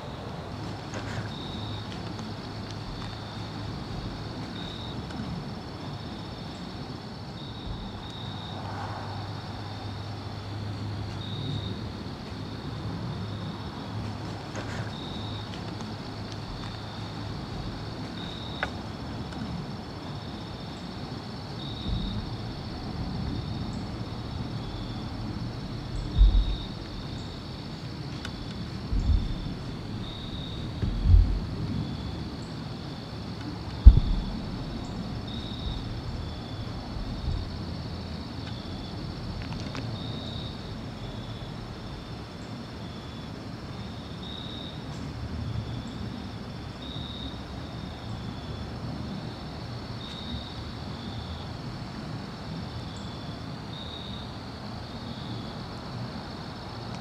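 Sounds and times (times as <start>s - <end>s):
insect trill: 0.0s - 57.0s
dull low thump: 7.6s - 8.1s, 21.9s - 22.6s, 25.6s - 27.2s, 28.9s - 31.8s, 33.8s - 37.6s
low rumble: 21.9s - 27.4s, 28.8s - 31.8s, 33.8s - 37.8s.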